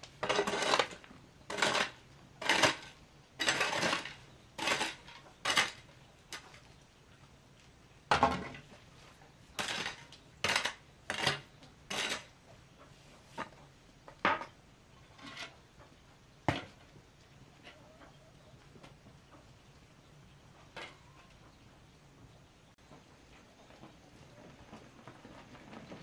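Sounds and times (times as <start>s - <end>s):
hoe scraping stony soil: 0.0s - 6.6s, 9.5s - 12.4s, 15.0s - 15.6s.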